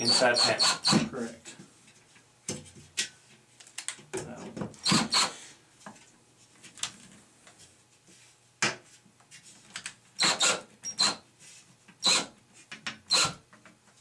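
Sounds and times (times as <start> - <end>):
cordless drill driving screws: 0.0 - 1.1, 4.8 - 5.4, 10.2 - 11.2, 12.0 - 12.3, 13.1 - 13.4.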